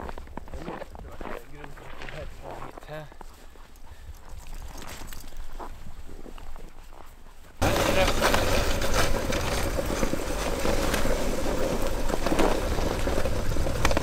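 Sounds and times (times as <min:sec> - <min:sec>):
faint patter of paws: 0:00.0 - 0:08.4
sled runners scraping over snow: 0:00.0 - 0:14.0.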